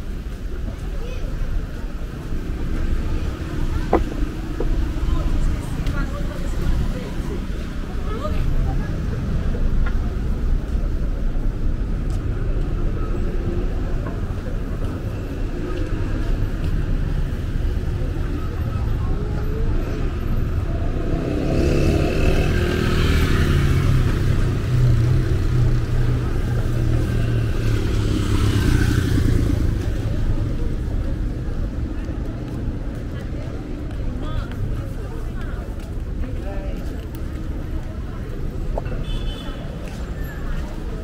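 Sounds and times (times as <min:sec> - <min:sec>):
vehicles passing: 0:00.0 - 0:41.0.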